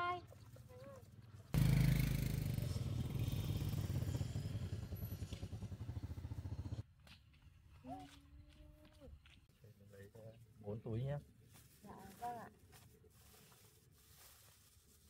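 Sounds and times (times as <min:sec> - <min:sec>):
motorbike engine running: 0:01.6 - 0:06.8.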